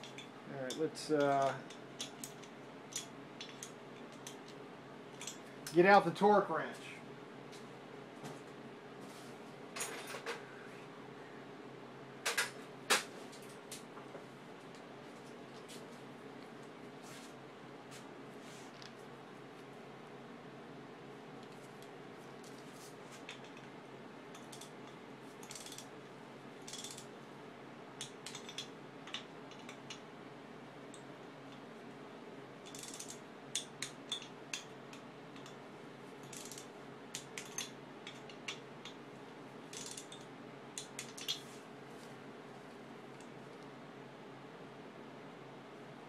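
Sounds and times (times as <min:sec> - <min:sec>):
faint steady hum: 0:00.0 - 0:46.0
torque wrench ratcheting clicks: 0:25.4 - 0:25.9, 0:39.7 - 0:40.2.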